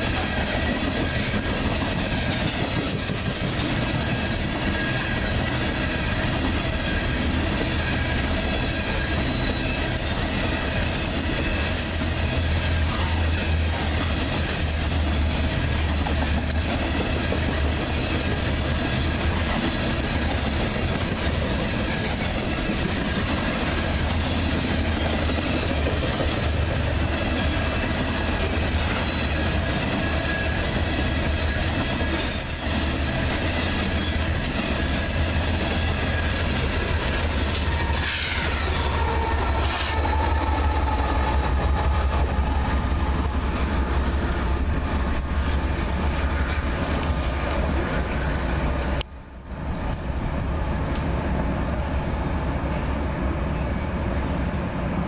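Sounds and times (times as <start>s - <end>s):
train cars rumbling past: 0.0s - 55.0s
high-pitched wheel squeal: 7.8s - 12.1s, 37.4s - 40.2s.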